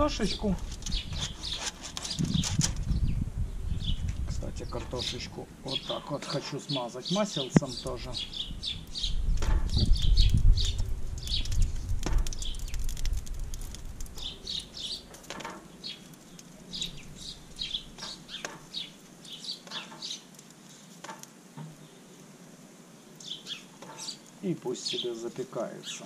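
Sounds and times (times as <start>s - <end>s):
low gusty rumble: 0.0s - 5.6s, 8.2s - 14.7s
small birds chirping: 0.0s - 26.0s
foil tray clicking on grill grate: 9.4s - 16.5s.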